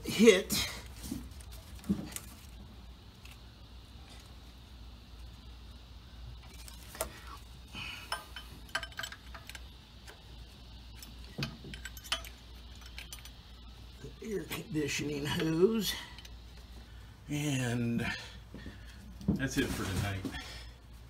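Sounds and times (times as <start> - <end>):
faint low hum: 0.0 - 21.0
wrench clinking on metal: 8.0 - 9.6, 11.0 - 13.4.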